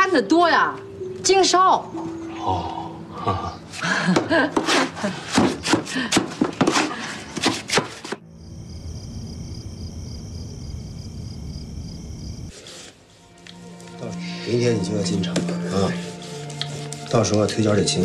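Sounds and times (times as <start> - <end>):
night insects chirring: 8.2 - 12.6.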